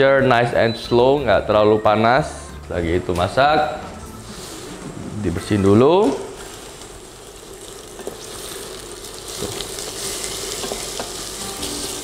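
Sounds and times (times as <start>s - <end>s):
onions sizzling in oil: 6.2s - 12.0s.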